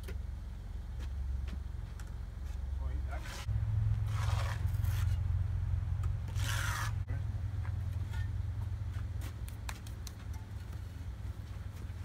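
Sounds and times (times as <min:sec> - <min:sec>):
steady low rumble: 0:00.0 - 0:12.0
concrete blocks scraping together: 0:04.1 - 0:05.2, 0:06.3 - 0:07.0.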